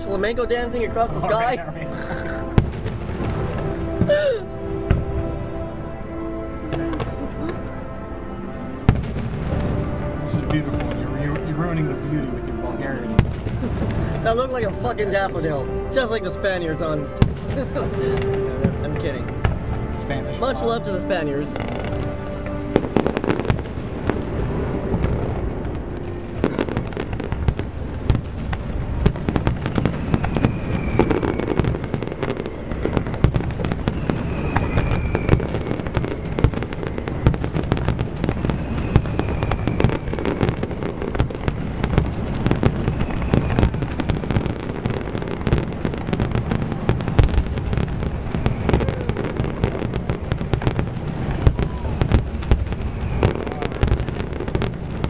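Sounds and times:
fireworks crackling and booming: 0.0 - 55.0
falling whistles: 29.8 - 41.1, 42.4 - 50.1, 51.4 - 54.5.

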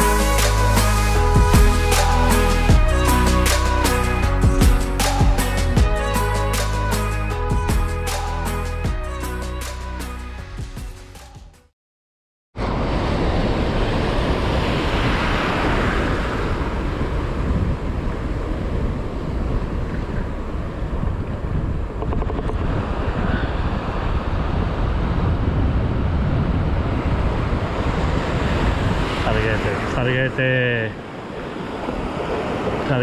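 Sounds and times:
wind buffeting microphone: 12.6 - 30.3.

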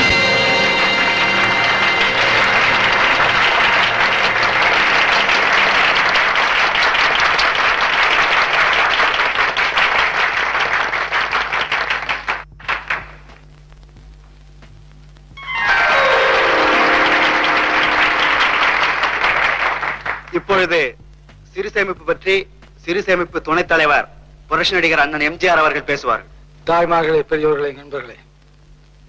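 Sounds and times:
audience applauding: 0.0 - 13.4, 15.4 - 20.6
faint low hum: 0.0 - 29.0.

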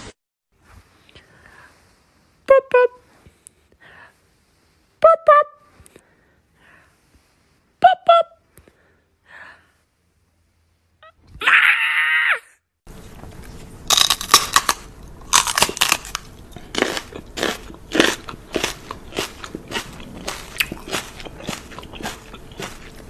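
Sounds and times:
man chewing and crunching: 12.9 - 23.0.

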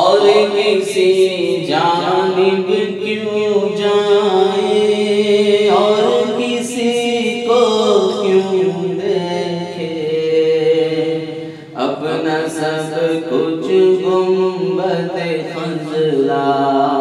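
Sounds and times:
man singing devotional poem: 0.0 - 17.0.

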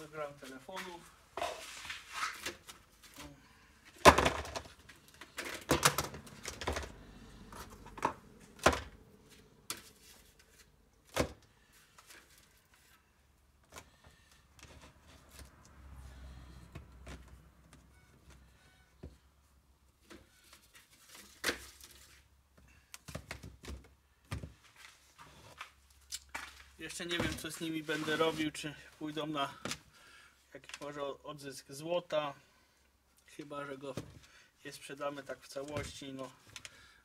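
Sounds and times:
faint clicks and rummaging: 2.4 - 13.0
plastic tub knocking and clattering: 4.0 - 4.7.

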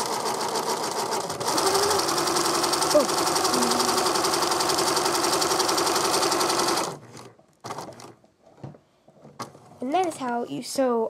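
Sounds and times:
sewing machine running: 0.0 - 8.1.

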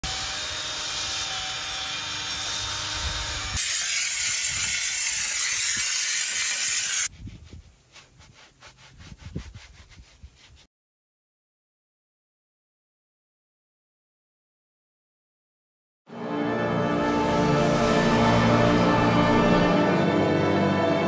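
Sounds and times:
cordless drill spinning brush: 0.1 - 10.6
hand brush scrubbing: 3.7 - 10.7.

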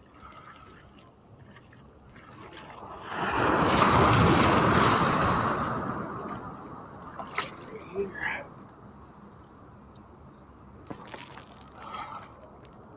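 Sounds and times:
ocean wave breaking: 2.4 - 8.2.

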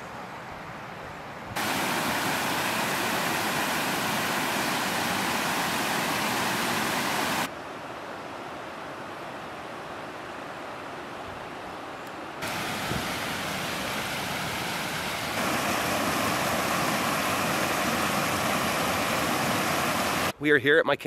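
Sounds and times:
outdoor background hiss: 0.0 - 21.0
creek rushing over rocks: 1.6 - 7.5, 12.4 - 20.4.

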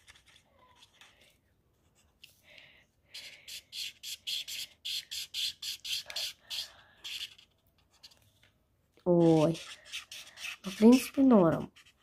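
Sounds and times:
marker scratching on paper: 3.1 - 8.2, 9.1 - 12.0.

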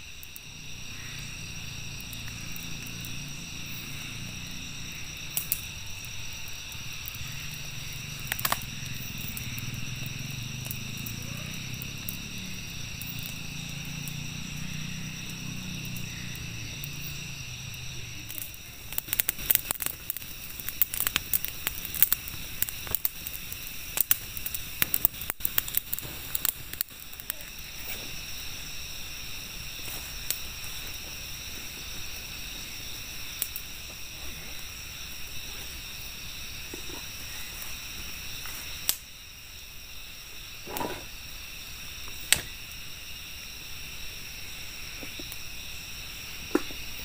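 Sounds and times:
night insects chirping: 0.0 - 47.0
sharp crackles and clicks: 0.1 - 28.1, 33.3 - 34.0, 38.4 - 39.1, 42.1 - 42.8.

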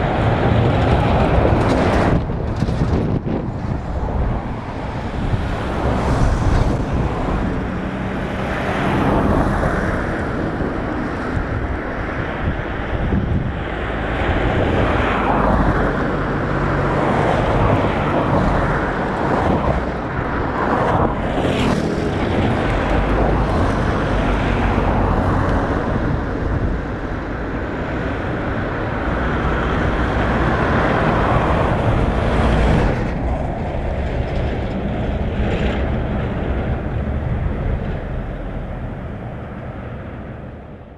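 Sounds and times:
wind on microphone: 0.0 - 40.9.

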